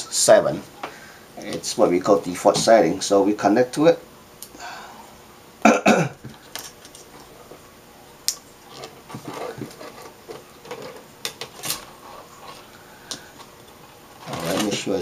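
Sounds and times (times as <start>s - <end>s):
metal strips scraping: 14.2s - 15.0s.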